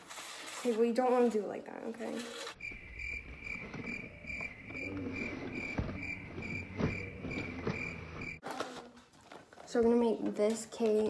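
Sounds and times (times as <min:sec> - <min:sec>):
cricket chirping: 0:02.6 - 0:08.4.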